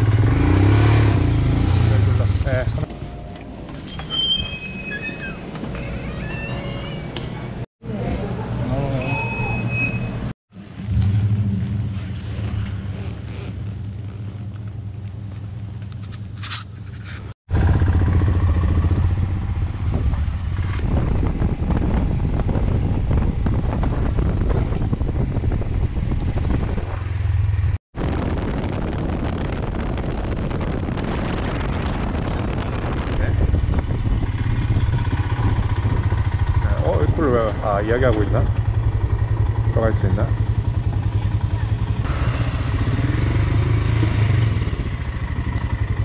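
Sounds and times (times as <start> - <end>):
motorcycle engine running: 17.5 - 46.0.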